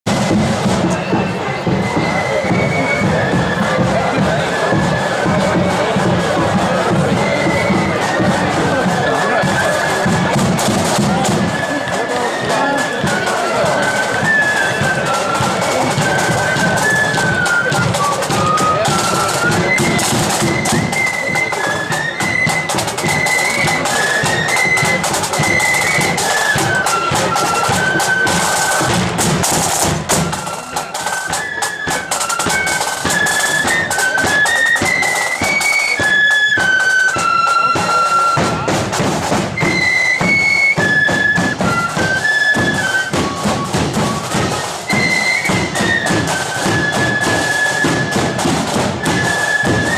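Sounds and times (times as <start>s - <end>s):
snare drums: 0.0s - 49.9s
flute melody: 0.1s - 49.9s.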